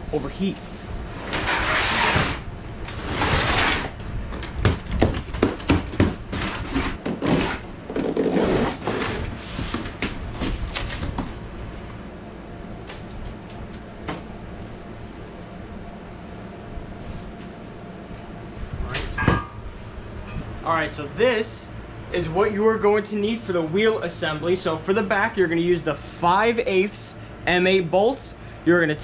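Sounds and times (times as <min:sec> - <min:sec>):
air-conditioner hum: 0:00.0 - 0:29.0
cardboard box scraping on concrete: 0:01.3 - 0:04.0, 0:06.4 - 0:10.0
light metal clinks: 0:12.8 - 0:13.8.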